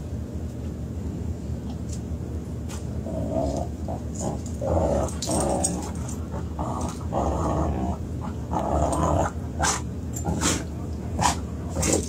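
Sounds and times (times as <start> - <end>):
dogs play-growling: 3.0 - 12.0.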